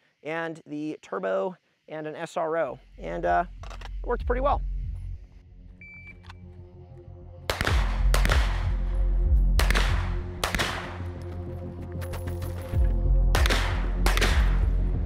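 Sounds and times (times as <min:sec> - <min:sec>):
background music: 0:02.2 - 0:15.0
pistol shots with echo: 0:07.5 - 0:08.8, 0:09.6 - 0:11.2, 0:13.3 - 0:14.8.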